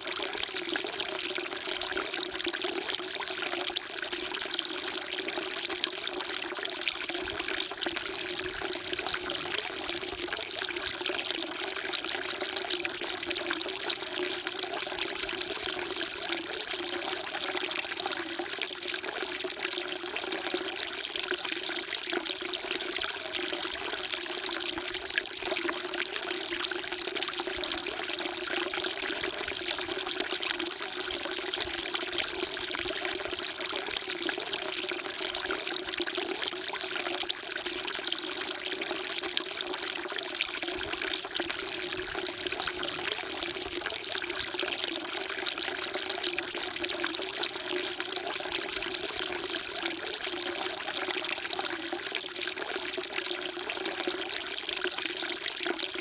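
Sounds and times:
water trickling into stone basin: 0:00.2 - 0:56.0.

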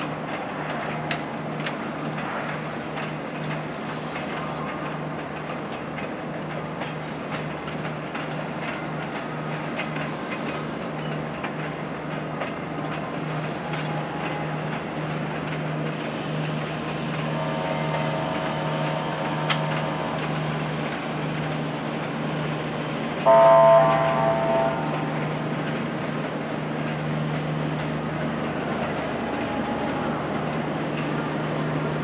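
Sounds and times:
train coaches rolling past: 0:00.0 - 0:32.0
loud train horn blast: 0:17.2 - 0:20.7, 0:23.2 - 0:25.4
faint drawn-out tone: 0:23.3 - 0:25.4.

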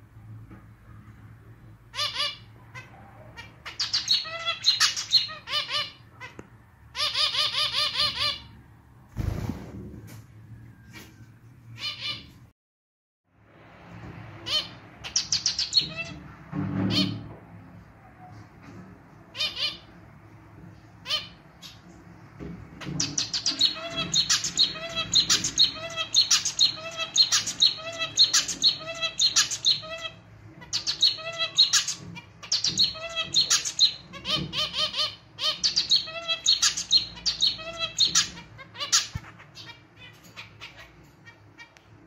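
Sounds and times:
finch singing: 0:02.0 - 0:06.4, 0:14.4 - 0:16.2, 0:22.8 - 0:41.8.

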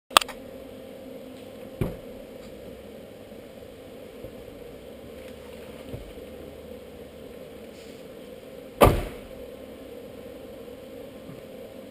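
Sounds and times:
low mechanical hum: 0:00.1 - 0:11.9
sharp knock: 0:08.8 - 0:09.3.

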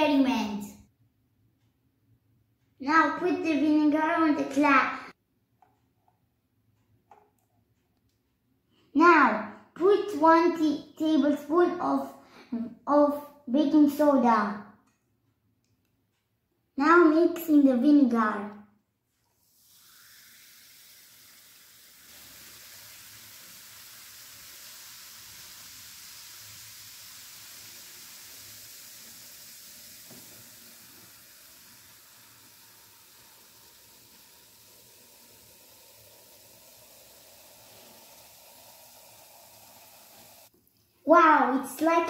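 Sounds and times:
fizzing bubbles hissing: 0:19.3 - 0:40.5.

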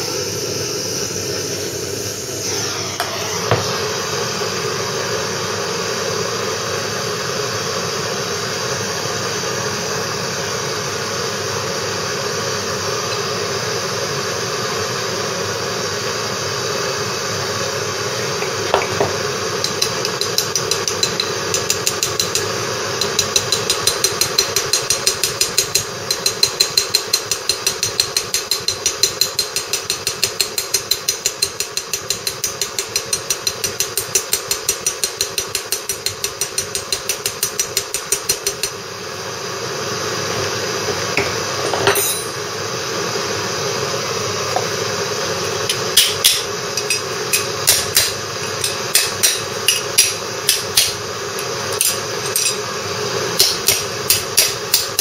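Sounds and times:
steady hum: 0:17.0 - 0:55.0
hammer tapping metal: 0:18.7 - 0:38.8, 0:41.2 - 0:42.4, 0:45.7 - 0:52.6, 0:53.4 - 0:55.0.

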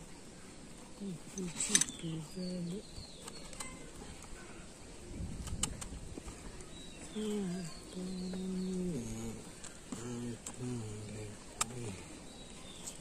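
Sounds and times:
sharp clicks: 0:05.4 - 0:06.0, 0:11.6 - 0:11.8.

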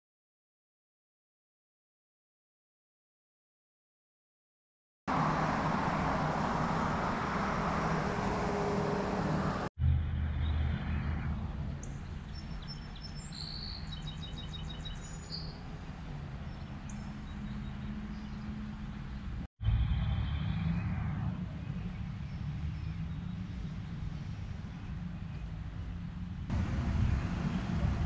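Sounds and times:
road traffic noise: 0:05.1 - 0:28.0
bird trill: 0:11.8 - 0:15.6
small birds chirping: 0:11.8 - 0:20.9, 0:21.5 - 0:27.7.

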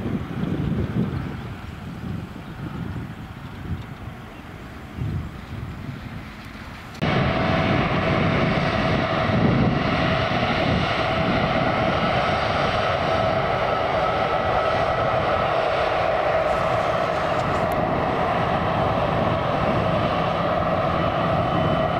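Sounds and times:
airliner engines roaring: 0:00.0 - 0:21.9
wind noise: 0:00.0 - 0:21.9
low rumble: 0:06.9 - 0:21.9.

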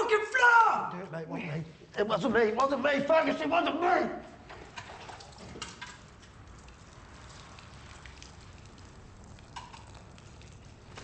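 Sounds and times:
water pouring onto head: 0:04.6 - 0:11.0.

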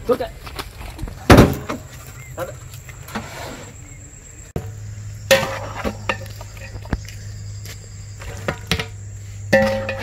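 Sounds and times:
crickets chirring: 0:00.1 - 0:10.0.

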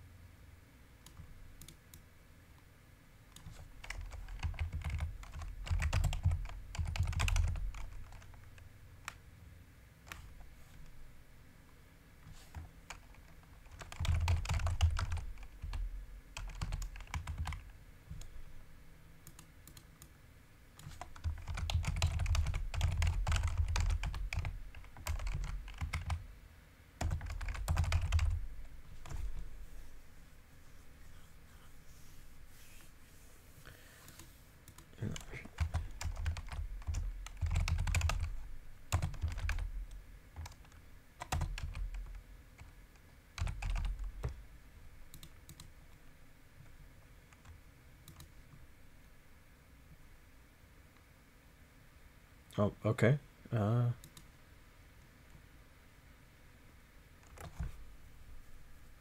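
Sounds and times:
keyboard typing clicks: 0:01.0 - 0:02.0, 0:03.3 - 0:09.2, 0:12.5 - 0:15.8, 0:16.4 - 0:18.3, 0:19.2 - 0:20.1, 0:20.8 - 0:26.2, 0:27.0 - 0:28.4, 0:34.1 - 0:42.7, 0:43.4 - 0:44.4, 0:45.1 - 0:45.7, 0:47.3 - 0:48.3, 0:54.0 - 0:54.3, 0:57.2 - 0:57.8.

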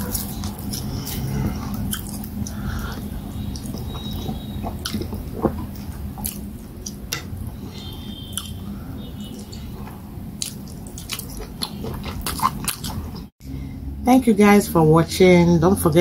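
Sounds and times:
close chewing: 0:00.0 - 0:07.1, 0:09.2 - 0:13.3.

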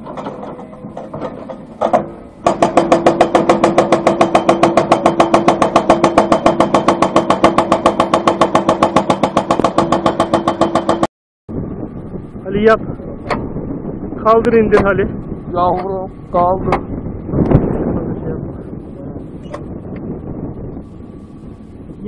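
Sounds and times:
hydraulic breaker hammering rock: 0:00.0 - 0:11.1
machine engine hum: 0:00.0 - 0:22.0.

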